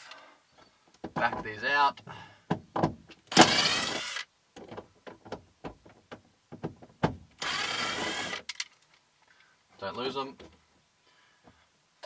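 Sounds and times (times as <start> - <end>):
impact driver running: 3.3 - 4.2, 7.4 - 8.4.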